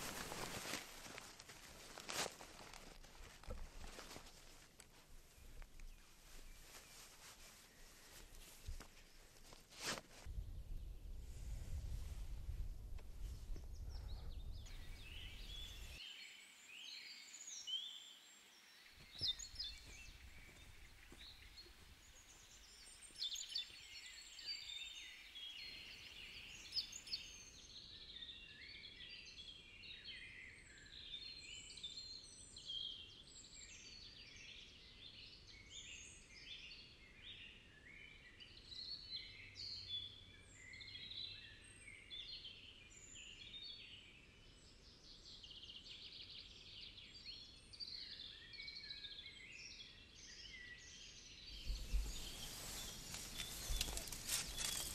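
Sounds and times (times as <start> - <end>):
songbirds chirping and singing: 13.8 - 31.0, 44.8 - 54.9.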